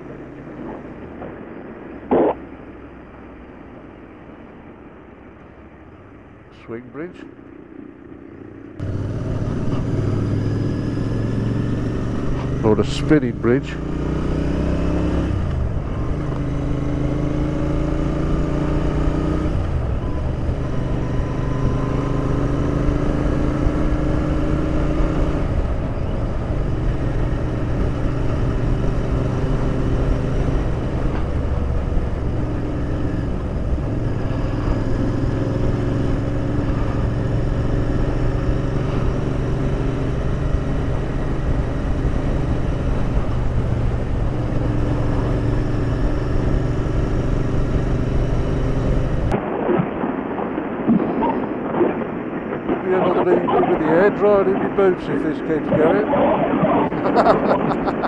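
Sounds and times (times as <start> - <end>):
road and wind noise: 0.0 - 58.0
motorcycle engine running: 7.5 - 49.4.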